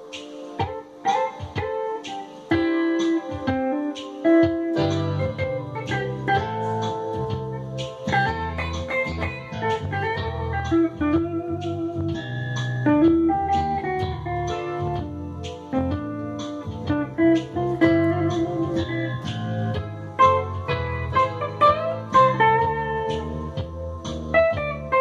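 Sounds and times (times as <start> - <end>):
electric guitar lead lines: 0.0 - 25.0.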